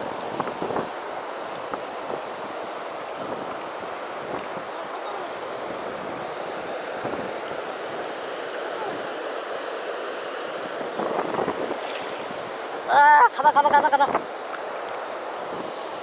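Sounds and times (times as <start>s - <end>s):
wind buffeting microphone: 0.0s - 2.6s, 10.6s - 14.3s
river water rushing: 0.0s - 16.0s.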